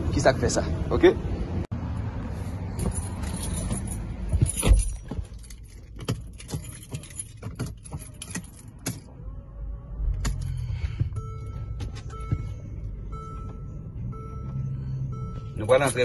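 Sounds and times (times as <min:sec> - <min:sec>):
car keys jangling and clicking: 0:02.7 - 0:09.1.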